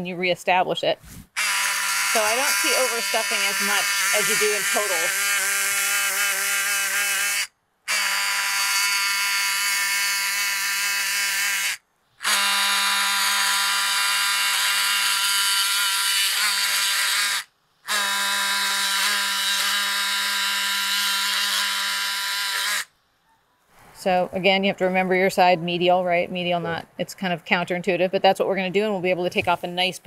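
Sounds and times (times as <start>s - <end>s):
surgical bone instrument buzzing: 1.4s - 22.9s.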